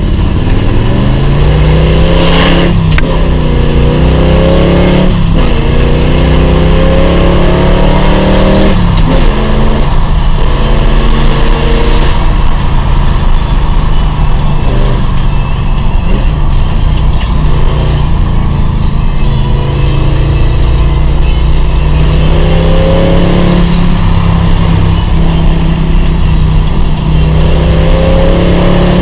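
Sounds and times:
car engine accelerating through gears: 0.0 - 29.0.

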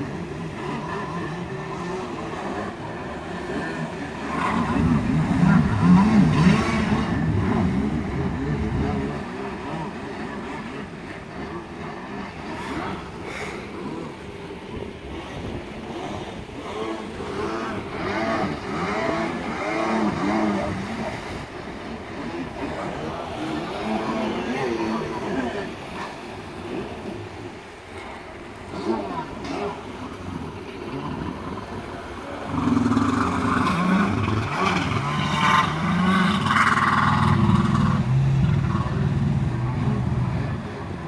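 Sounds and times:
jet ski engines revving: 0.0 - 41.0.

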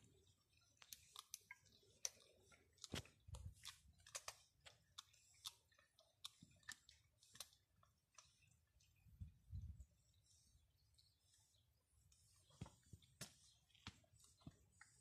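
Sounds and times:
kitten chewing and crunching: 0.0 - 9.4.

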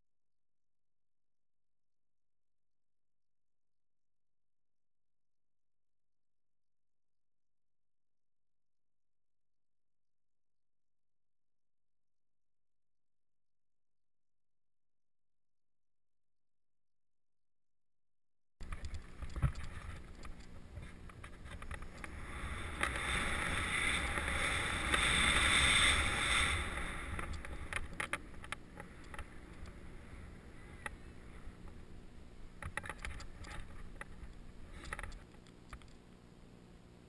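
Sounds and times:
wind rumbling on microphone: 18.6 - 35.2
skis hissing through powder snow: 21.9 - 27.8.

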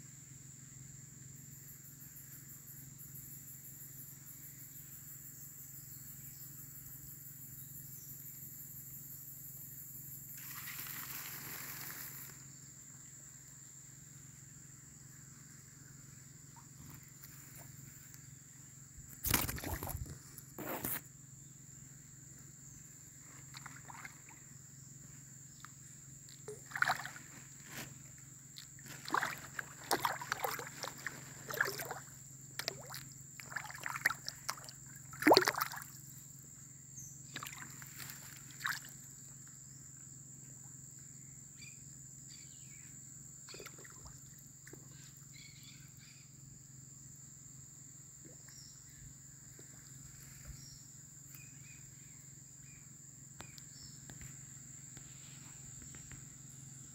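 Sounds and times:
water splashing and sloshing: 19.2 - 20.4, 23.4 - 24.5, 26.4 - 36.0, 37.3 - 39.0.

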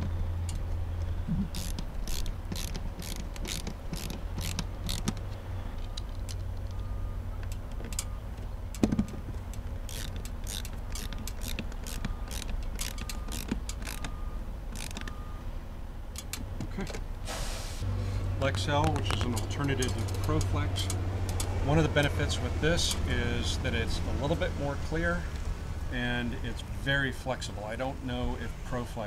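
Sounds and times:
ratcheting screwdriver clicking: 1.5 - 6.4, 9.9 - 14.1, 14.8 - 15.1.

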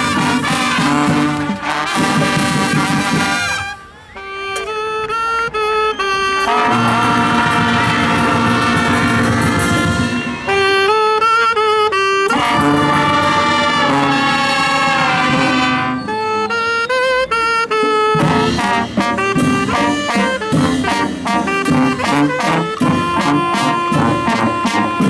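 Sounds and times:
drums and cymbals beat: 0.0 - 3.7, 6.5 - 10.9, 18.1 - 25.0
brass and saxophones playing: 0.0 - 25.0.

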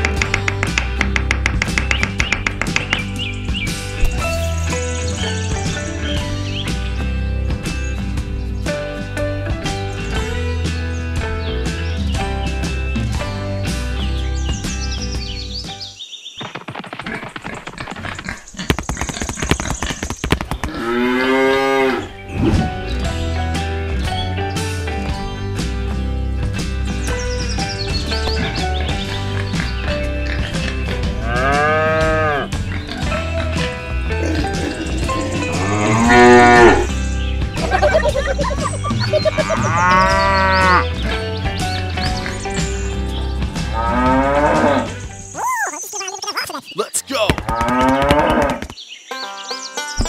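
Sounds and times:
background music: 0.0 - 16.0, 20.8 - 50.0
cow mooing: 34.7 - 36.9, 39.2 - 40.8.

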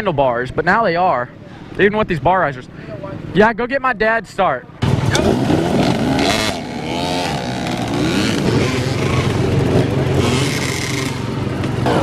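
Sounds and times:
dirt bike engines revving: 4.7 - 12.0.

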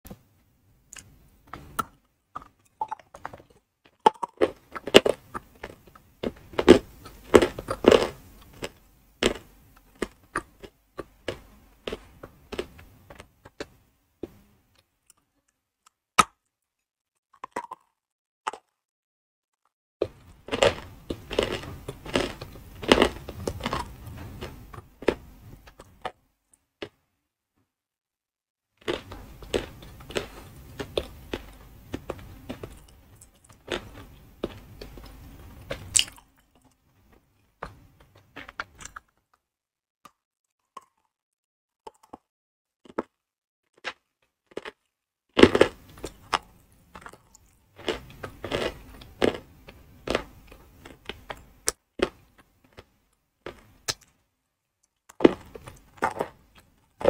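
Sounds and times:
gritty chewing: 0.9 - 15.3, 17.3 - 18.8, 19.6 - 26.2, 28.8 - 39.2, 42.8 - 54.2, 54.9 - 57.0
chalk crunching bites: 20.1 - 26.2, 45.4 - 52.9, 55.1 - 57.0.

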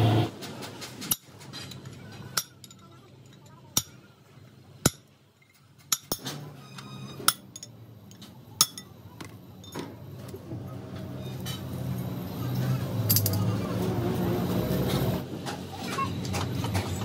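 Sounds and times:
metal parts clinking: 1.5 - 3.9, 12.6 - 13.5.

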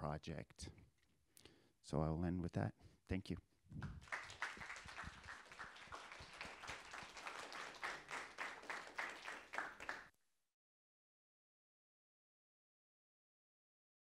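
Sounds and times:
audience applauding: 4.0 - 10.1.

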